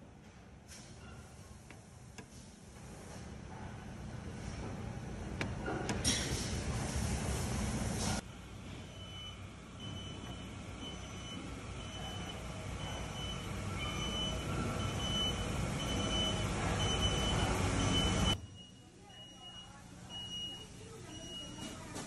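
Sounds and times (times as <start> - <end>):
factory machinery rumbling: 3.9 - 18.4.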